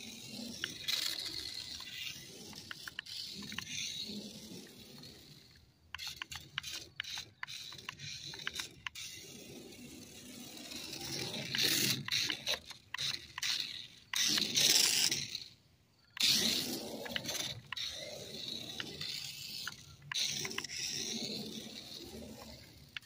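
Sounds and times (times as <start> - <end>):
toy car motor and gears: 0.0 - 23.0
sharp clicks: 5.9 - 9.1, 11.5 - 15.2
rubber tyres scraping on mat: 16.1 - 23.0.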